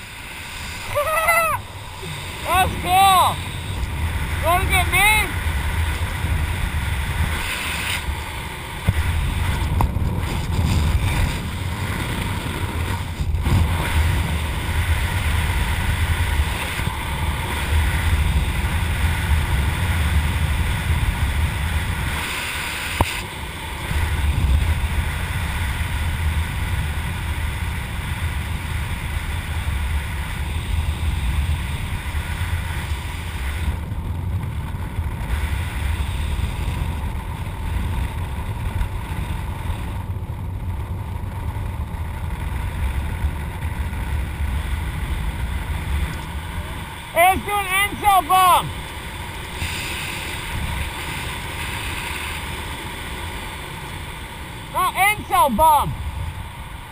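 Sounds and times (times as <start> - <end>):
wind buffeting microphone: 0.0 - 22.4.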